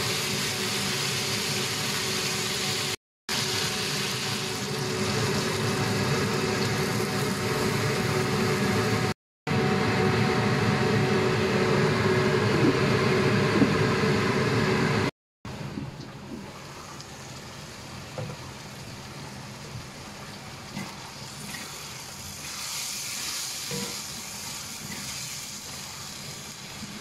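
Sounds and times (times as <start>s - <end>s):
meat sizzling in a wok: 0.0s - 9.0s, 16.8s - 27.0s
steady mechanical hum: 0.0s - 27.0s.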